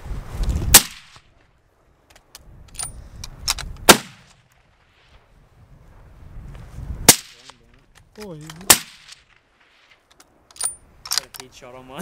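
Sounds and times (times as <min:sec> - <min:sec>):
rifle shots: 0:00.7 - 0:01.2, 0:03.8 - 0:04.4, 0:08.6 - 0:09.7.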